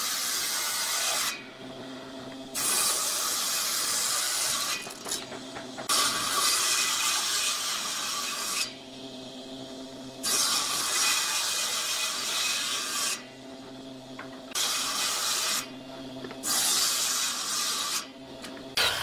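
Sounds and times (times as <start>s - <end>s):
table saw cutting wood: 0.0s - 1.5s, 2.5s - 8.9s, 10.2s - 13.3s, 14.5s - 15.8s, 16.4s - 19.0s.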